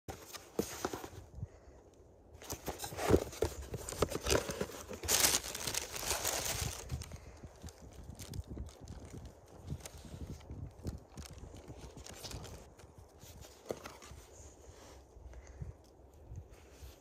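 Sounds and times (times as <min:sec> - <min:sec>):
tissue paper crinkling: 0:02.5 - 0:14.3.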